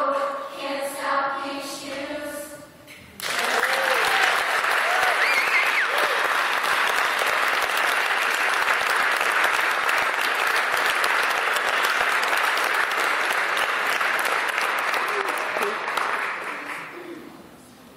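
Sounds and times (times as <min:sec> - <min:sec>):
audience applauding: 0:03.2 - 0:17.1
person whooping: 0:03.5 - 0:06.2.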